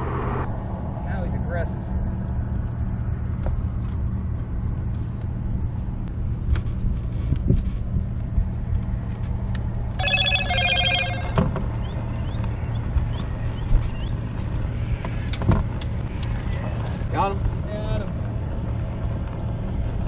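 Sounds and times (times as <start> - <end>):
electronic ringing tone: 10.0 - 11.5
low hum: 10.0 - 11.6.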